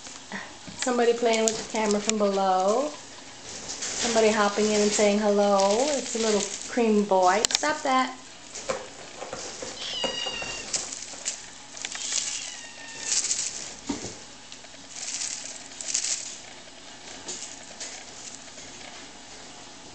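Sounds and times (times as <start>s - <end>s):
kittens scuffling and rustling: 0.6s - 19.9s
kittens mewing: 9.8s - 10.9s, 11.9s - 13.7s.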